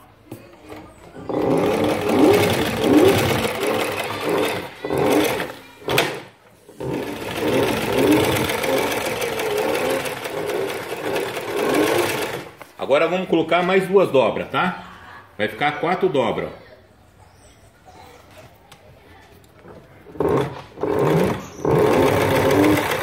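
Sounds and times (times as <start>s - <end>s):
sewing machine stitching: 0.7s - 12.6s, 20.0s - 23.0s.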